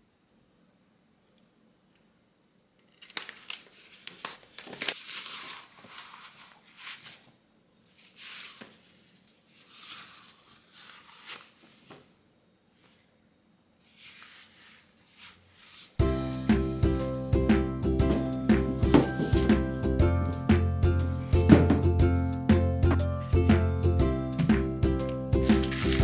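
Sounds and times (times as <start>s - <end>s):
crinkling and rustling: 2.8s - 12.1s, 25.4s - 26.0s.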